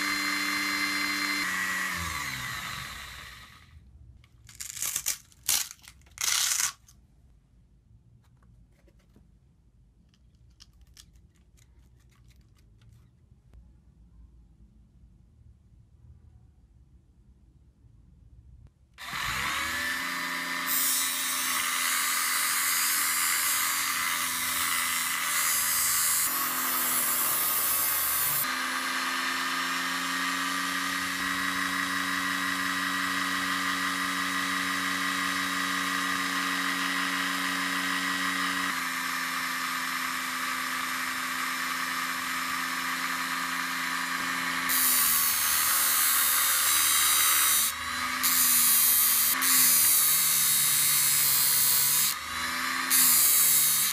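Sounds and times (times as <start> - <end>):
electric motor humming: 0.0 - 3.6, 19.0 - 53.9
steel grinding on sanding disc: 19.9 - 29.8, 30.6 - 52.3, 52.9 - 53.9.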